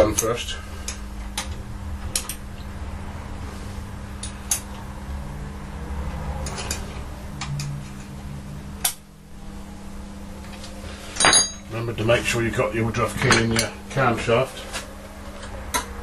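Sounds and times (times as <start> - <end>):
steady low hum: 0.0 - 16.0
steel parts clinking: 11.1 - 11.7.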